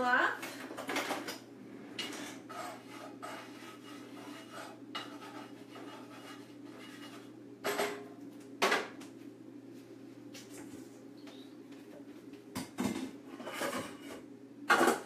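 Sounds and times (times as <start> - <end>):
low steady hum: 0.0 - 15.0
scraping and rubbing strokes: 2.5 - 7.4.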